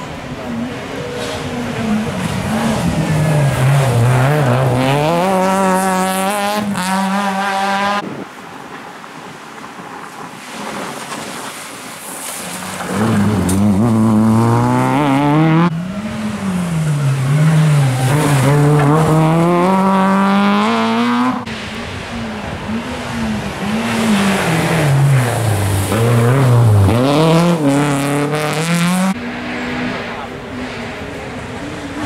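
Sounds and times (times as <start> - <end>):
rally cars passing: 0.0 - 32.0
engines revving hard: 0.7 - 8.0, 12.7 - 32.0.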